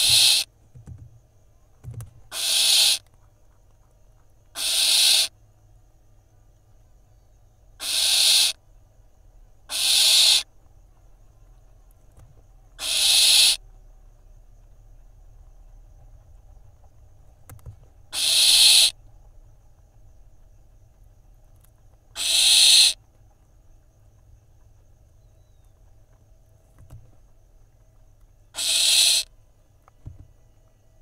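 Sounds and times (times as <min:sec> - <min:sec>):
owl nestlings screeching: 0:00.0 - 0:00.5, 0:02.3 - 0:03.0, 0:04.6 - 0:05.3, 0:07.8 - 0:08.6, 0:09.7 - 0:10.5, 0:12.8 - 0:13.6, 0:18.1 - 0:19.0, 0:22.2 - 0:23.0, 0:28.6 - 0:29.3.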